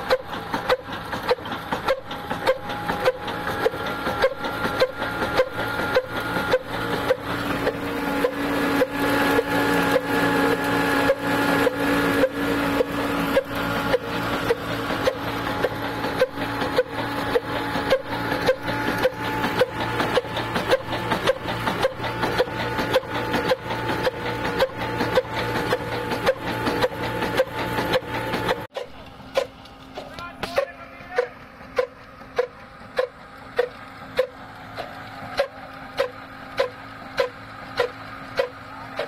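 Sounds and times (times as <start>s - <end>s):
grain mill grinding whine: 0.0s - 39.0s
oil engine running slowly: 0.0s - 39.0s.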